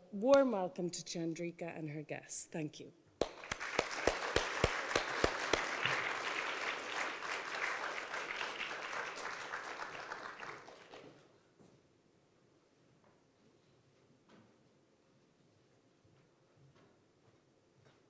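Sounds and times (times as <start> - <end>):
audience applause: 3.2 - 11.2.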